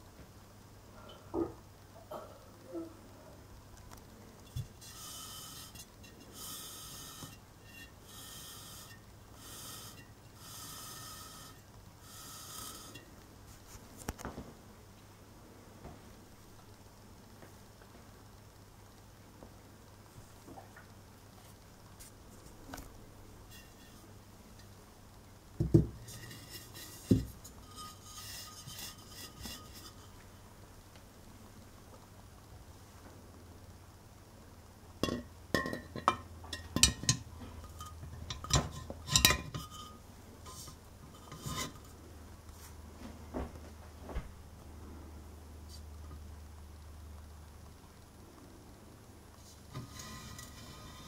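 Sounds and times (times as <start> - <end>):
steady low hum: 0.0 - 51.0
glassy clinking and rubbing: 4.4 - 13.7, 23.5 - 24.8, 25.7 - 30.2, 35.0 - 42.0, 49.7 - 51.0.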